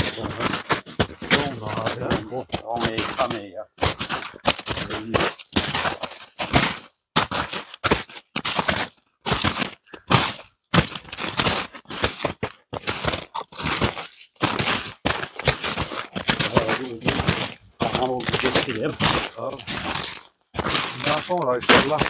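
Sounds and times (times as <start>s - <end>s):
footsteps crunching in snow: 0.0s - 22.0s.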